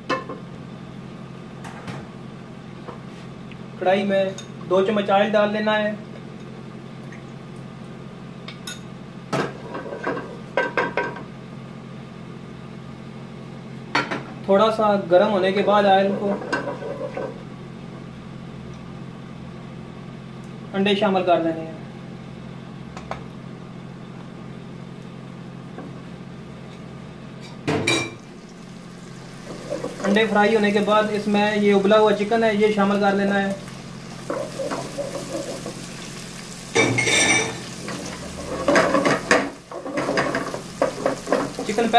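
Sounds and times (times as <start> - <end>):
low mechanical hum: 0.0 - 41.9
eggs frying in hot oil: 28.1 - 41.9
metal kitchenware clinking: 36.8 - 37.6.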